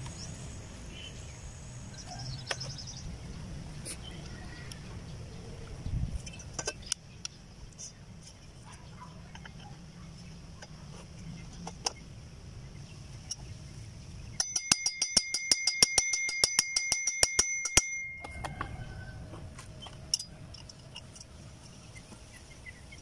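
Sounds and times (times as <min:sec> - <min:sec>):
fast metal taps on pulley: 0:14.4 - 0:18.7
metal pulley ringing: 0:14.4 - 0:18.9, 0:20.0 - 0:21.1.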